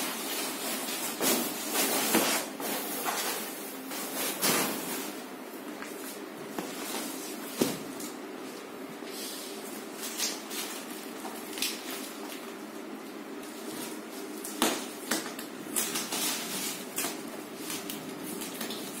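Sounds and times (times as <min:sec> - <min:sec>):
plastic wrap crinkling: 0:09.9 - 0:19.0.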